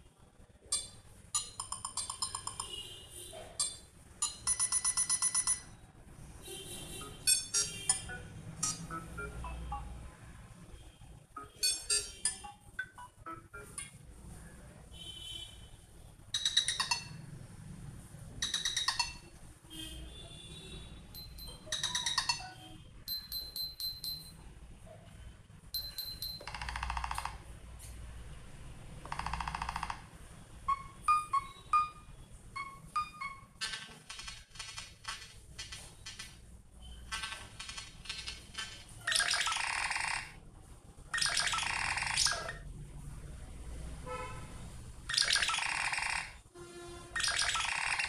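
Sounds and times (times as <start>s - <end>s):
phone ringtones beeping and chiming: 0.7s - 2.8s, 3.6s - 5.9s, 6.9s - 10.2s, 11.3s - 14.0s, 16.3s - 17.2s, 18.4s - 19.4s, 21.2s - 24.5s, 25.8s - 27.4s, 29.1s - 33.8s, 39.1s - 40.4s, 41.2s - 42.6s, 45.1s - 46.4s, 47.2s - 48.0s.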